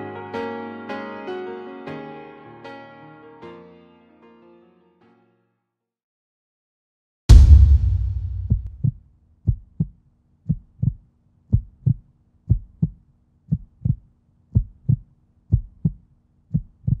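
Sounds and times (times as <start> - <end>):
heartbeat thumps: 7.3 - 17.0.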